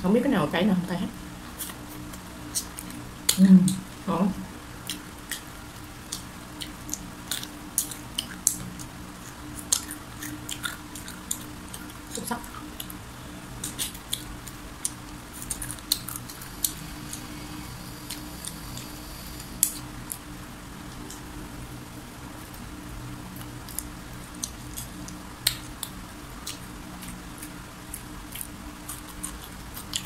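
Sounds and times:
low hum: 0.0 - 29.4
crunchy chewing: 1.5 - 3.0, 4.8 - 13.0, 13.6 - 20.3, 23.4 - 30.0.

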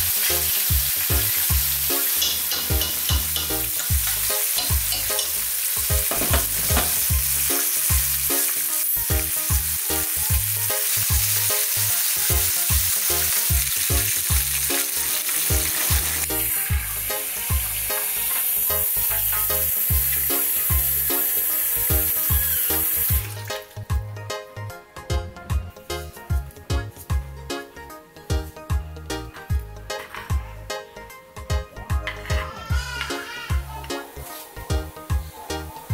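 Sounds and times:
fish sizzling in hot oil: 0.0 - 23.6
background music with bass beat: 18.7 - 35.9.

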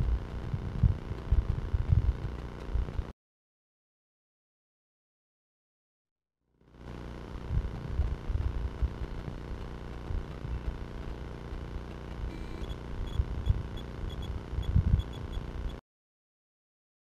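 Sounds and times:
rumbles and knocks on microphone: 0.0 - 3.0
camera electronic hum: 0.0 - 3.1, 6.6 - 15.8
faint high ticks: 6.8 - 15.8.

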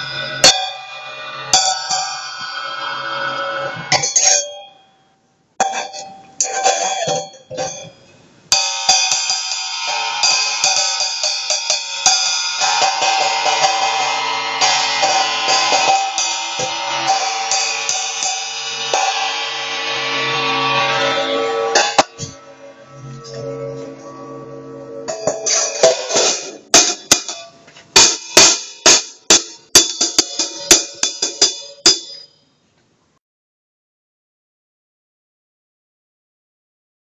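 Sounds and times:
hi-hat cymbal struck with drumstick: 0.0 - 4.6, 8.5 - 23.7, 25.1 - 32.3.

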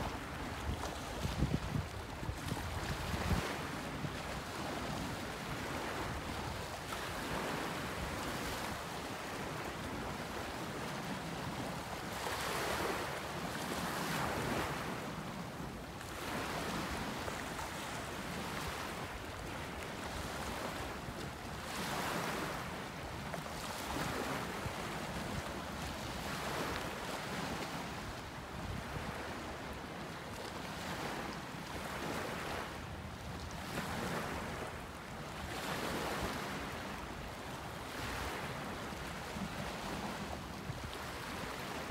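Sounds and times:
wind noise on microphone: 0.0 - 15.1.

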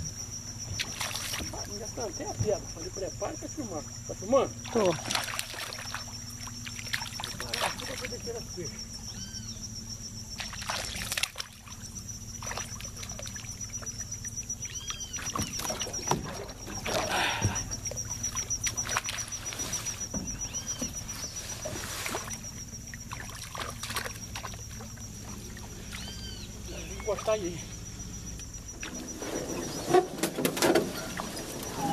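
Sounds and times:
fish splashing in water: 0.7 - 1.8, 4.6 - 8.3, 10.3 - 27.5
bird calling: 1.4 - 9.8, 10.8 - 31.9.

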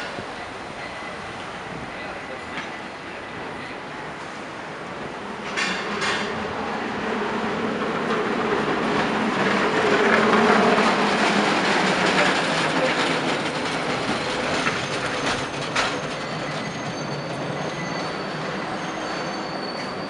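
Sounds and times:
cable car wheels rumbling on rail: 0.0 - 20.0
high metal wheel squeals: 14.0 - 20.0.

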